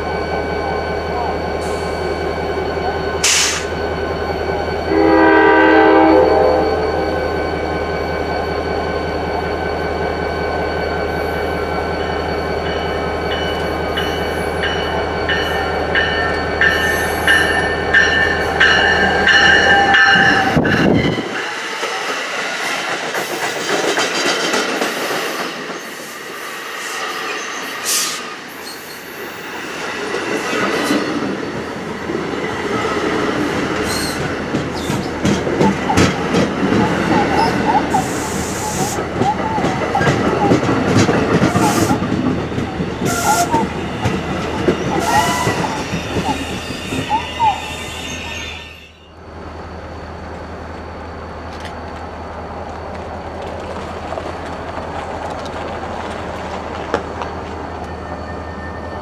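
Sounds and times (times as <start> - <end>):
train wheels on rails: 0.0 - 59.0
train whining tones: 0.0 - 59.0
train horn: 4.8 - 7.4.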